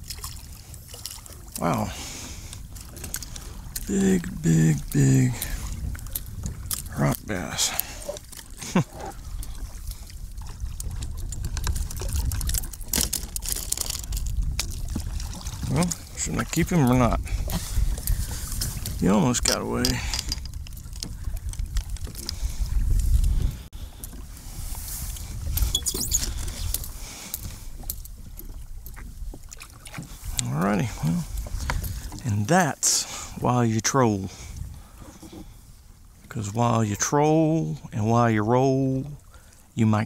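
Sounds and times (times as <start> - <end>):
water splashing and trickling: 0.0 - 40.0.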